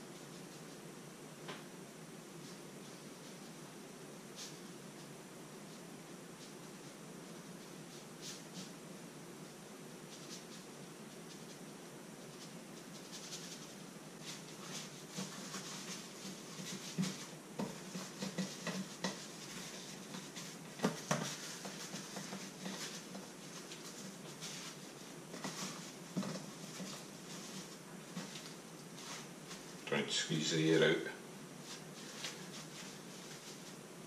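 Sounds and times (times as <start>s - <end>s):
dry mixture pattering: 9.4s - 30.8s.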